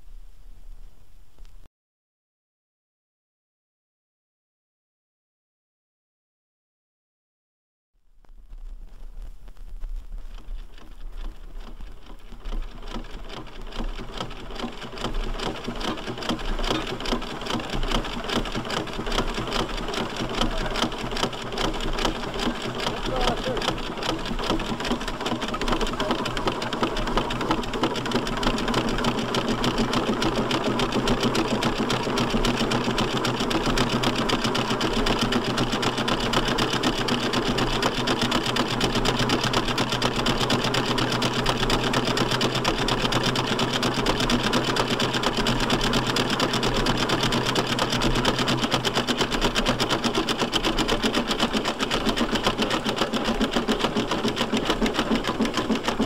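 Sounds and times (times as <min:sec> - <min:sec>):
steam traction engine clatter: 0:11.6 - 0:56.0.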